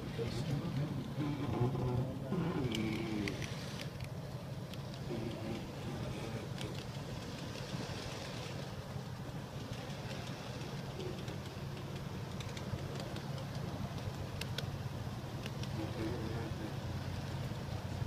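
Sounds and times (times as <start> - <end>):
sharp clicks: 10.2 - 14.7, 15.4 - 15.8.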